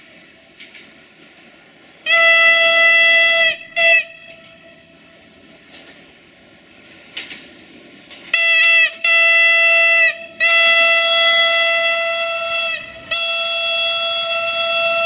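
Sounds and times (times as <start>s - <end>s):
train low rumble: 0.0s - 15.0s
train horn blasts: 2.0s - 5.5s, 8.2s - 15.0s.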